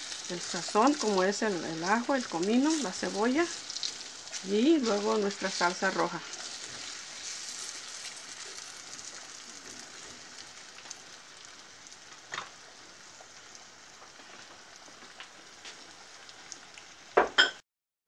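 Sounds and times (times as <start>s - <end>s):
potatoes sizzling in hot oil: 0.0s - 17.6s.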